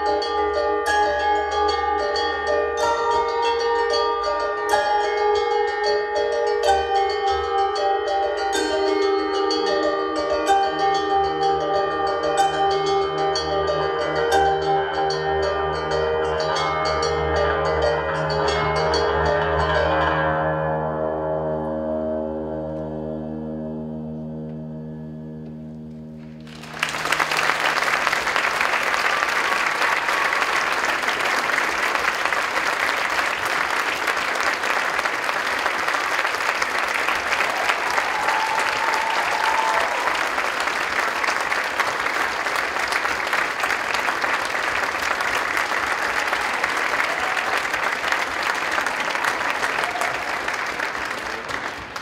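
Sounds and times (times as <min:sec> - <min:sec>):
audience applause: 0:26.2 - 0:52.0.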